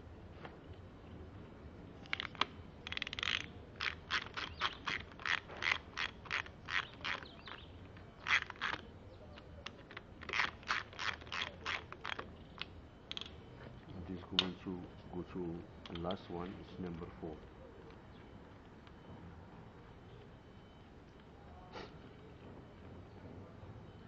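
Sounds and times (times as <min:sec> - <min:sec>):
ratchet wrench clicking: 0:02.0 - 0:07.6, 0:08.2 - 0:08.8, 0:09.6 - 0:13.3.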